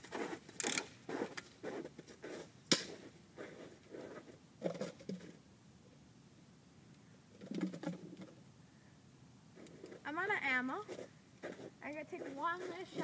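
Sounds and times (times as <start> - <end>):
footsteps crunching through snow: 0.0 - 4.4, 10.8 - 13.0
soft rustles: 0.0 - 5.4, 10.8 - 13.0.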